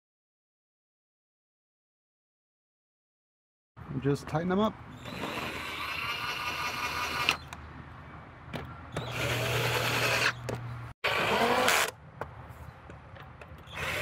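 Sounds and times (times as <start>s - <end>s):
cordless drill motor whirring: 5.0s - 7.6s, 8.9s - 10.4s, 11.0s - 12.0s, 13.7s - 14.0s.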